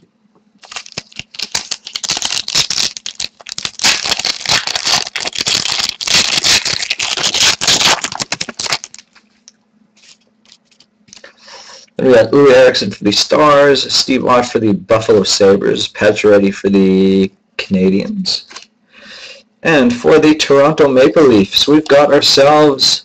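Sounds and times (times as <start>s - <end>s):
card pack rustling and crinkling: 0.6s - 11.3s.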